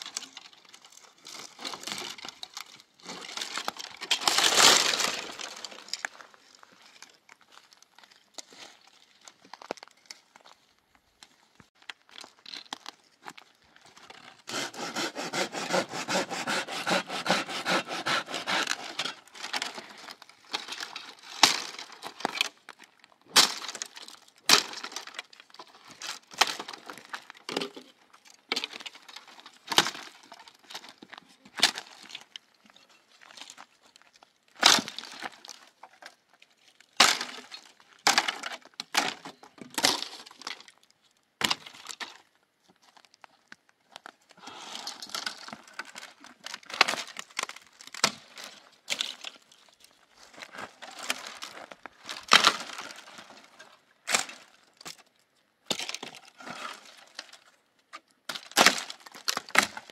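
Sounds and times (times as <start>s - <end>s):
sharp cracks and knocks: 1.2s - 6.2s, 20.5s - 22.7s, 23.3s - 27.9s, 37.0s - 40.7s, 45.1s - 49.4s, 52.1s - 53.4s, 54.1s - 57.2s, 58.3s - 59.9s.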